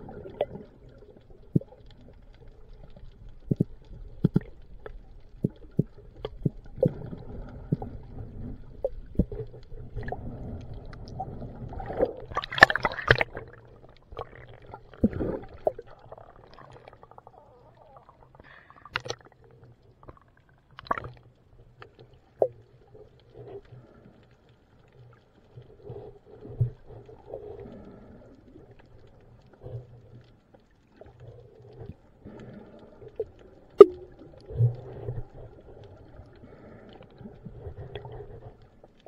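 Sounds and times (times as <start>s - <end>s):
muffled underwater rumbling: 0.0s - 24.0s.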